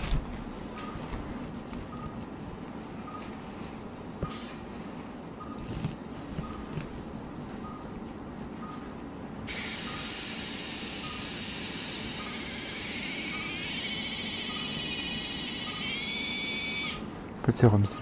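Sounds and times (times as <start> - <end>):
surgical drill whining: 9.5 - 17.1.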